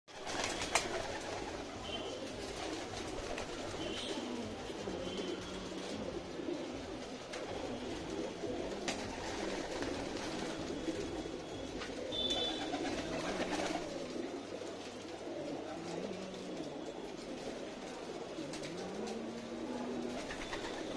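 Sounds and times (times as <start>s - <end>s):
pigeons cooing: 0.2s - 20.9s.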